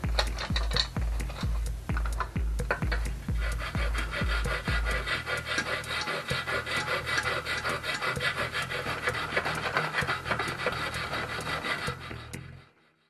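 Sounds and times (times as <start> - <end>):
sharpening stone scraping steel: 2.7 - 12.6.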